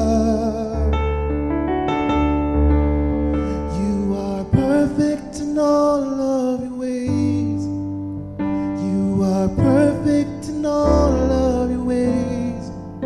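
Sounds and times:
person singing with vibrato: 0.0 - 1.2, 3.4 - 7.9, 8.5 - 13.0
keyboard chords: 0.0 - 13.0.

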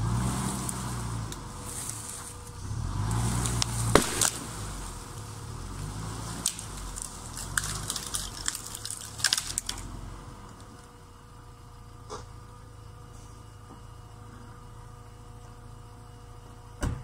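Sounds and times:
tyres crunching over twigs: 0.0 - 10.9
car engine running: 0.0 - 17.0.

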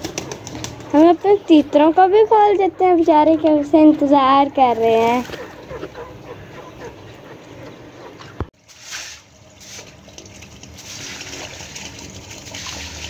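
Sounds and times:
water trickling and splashing: 1.6 - 5.8, 8.5 - 13.0.

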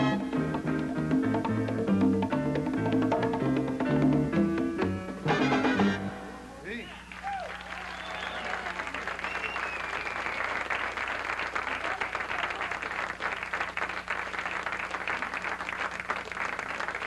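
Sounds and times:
audience applauding: 7.1 - 17.0.

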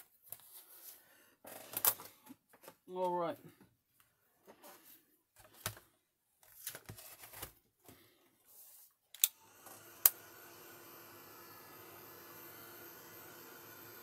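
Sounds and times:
paper and plastic shuffling: 0.0 - 3.2, 4.4 - 8.9
heat tool blowing with hum: 9.2 - 14.0.

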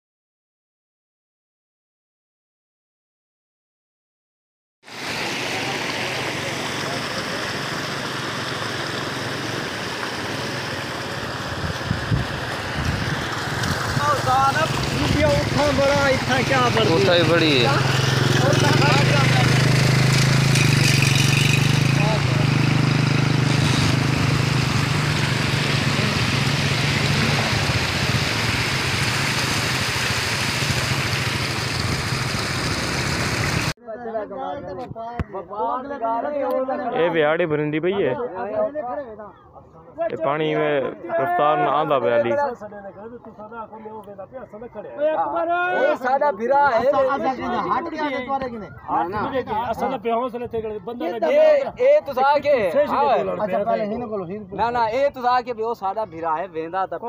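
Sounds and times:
floodwater rushing over road: 4.9 - 33.8
motorcycle engine running: 6.1 - 33.7.

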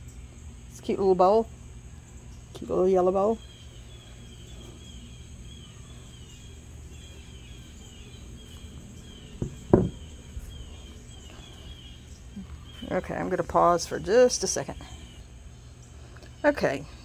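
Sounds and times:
bowl knocking on wooden board: 9.4 - 10.0.

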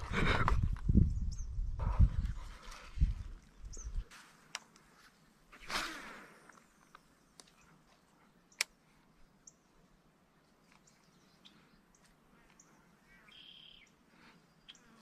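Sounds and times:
bird chirps: 10.4 - 15.0.

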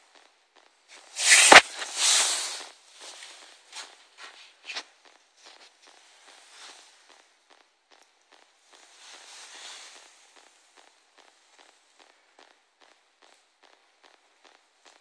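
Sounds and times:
cat claws scratching carpet: 1.0 - 5.7
sharp knock: 1.2 - 2.0.

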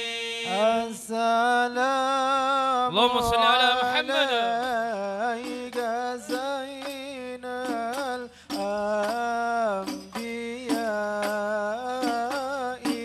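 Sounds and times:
man singing devotional song: 0.0 - 13.0
hand-drum strikes: 4.5 - 13.0.

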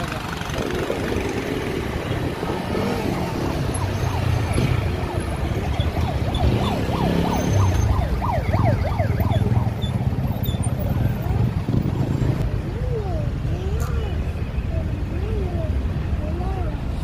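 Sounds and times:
low rumble of traffic engines: 0.0 - 17.0
siren yelping: 3.0 - 10.2.

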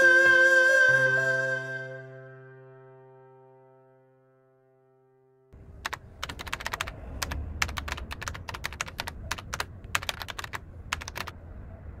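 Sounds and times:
keyboard keys clicking: 5.8 - 11.4.

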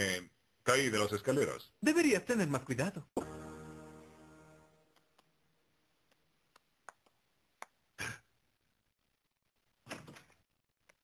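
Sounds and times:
held music chord: 3.2 - 4.8.

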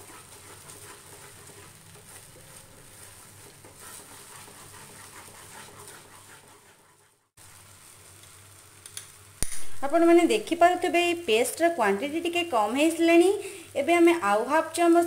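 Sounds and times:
spatula stirring thick paste: 0.0 - 7.4
light sizzle: 0.0 - 15.0.

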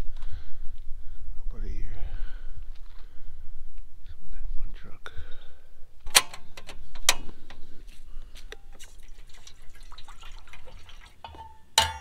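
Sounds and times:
water dripping and trickling: 8.5 - 12.0.

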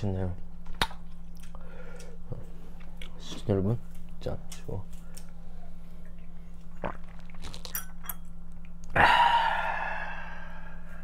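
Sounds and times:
man swallowing a drink: 6.7 - 7.8
man sighing ahh: 8.9 - 10.9.

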